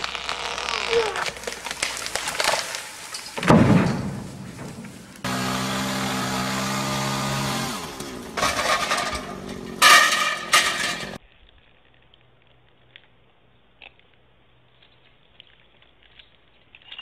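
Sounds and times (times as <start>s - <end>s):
chainsaw running: 0.0s - 2.4s, 5.2s - 11.2s
limb and ladder crashing down: 1.0s - 11.2s.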